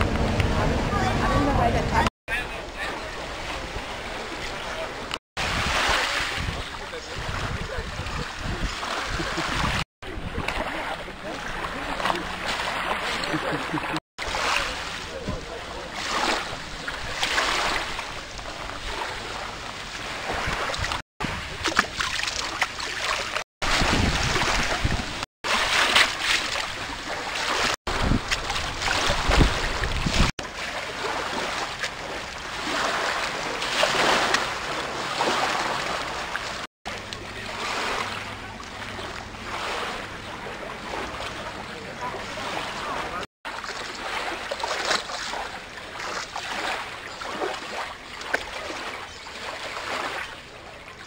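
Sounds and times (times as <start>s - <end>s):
heavy low rumble: 0.0s - 2.1s
open water: 0.0s - 51.0s
wind on microphone: 5.4s - 11.7s, 16.4s - 22.0s, 23.6s - 25.2s, 27.6s - 30.3s.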